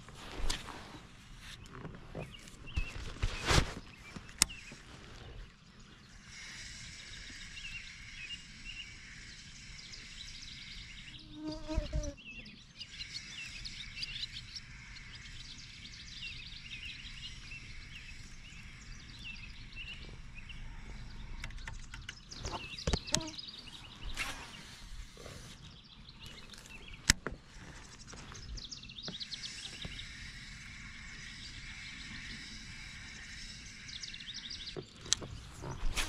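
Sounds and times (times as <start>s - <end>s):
birds chirping: 0.0s - 36.0s
faint insect buzz: 6.1s - 20.0s, 22.6s - 25.6s, 29.2s - 34.8s
faint clicks: 21.3s - 23.3s.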